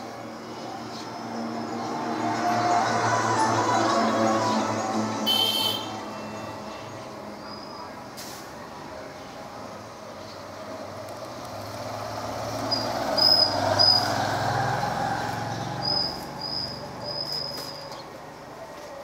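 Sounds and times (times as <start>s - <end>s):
vehicle driving past: 0.5s - 5.2s, 11.4s - 17.5s.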